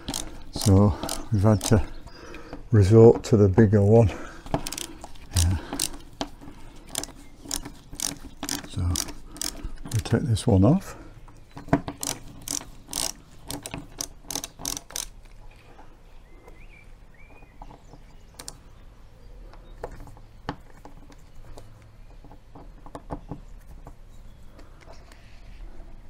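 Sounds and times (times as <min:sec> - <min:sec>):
ratchet screwdriver clicking: 0:00.0 - 0:01.9, 0:04.6 - 0:06.0, 0:06.9 - 0:09.6, 0:12.0 - 0:15.2.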